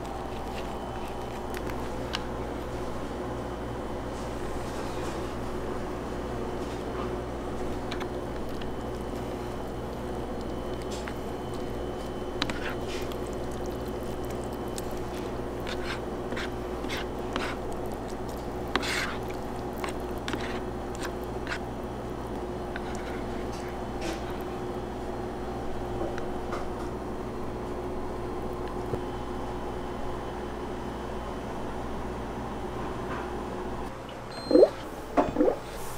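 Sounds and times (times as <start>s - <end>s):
steady machine hum: 0.0s - 35.9s
plastic spoon stirring in broth: 7.5s - 21.6s, 22.3s - 24.4s.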